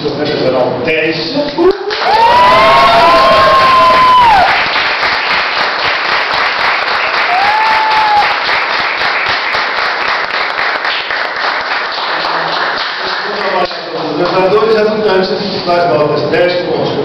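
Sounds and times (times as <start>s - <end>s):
people applauding: 1.9s - 14.5s.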